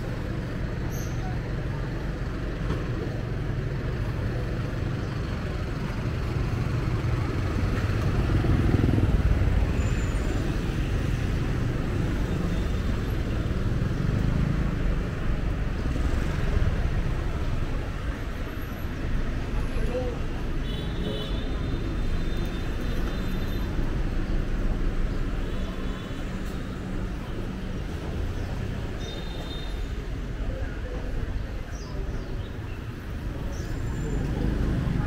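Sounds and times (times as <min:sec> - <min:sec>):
rumble of engines and tyres: 0:00.0 - 0:35.0.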